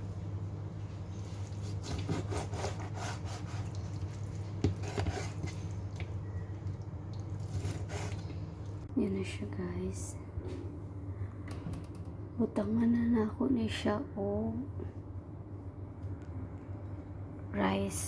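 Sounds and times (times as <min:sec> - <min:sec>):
steady low hum: 0:00.0 - 0:18.0
knife cutting on plastic board: 0:01.6 - 0:03.7, 0:04.6 - 0:05.4.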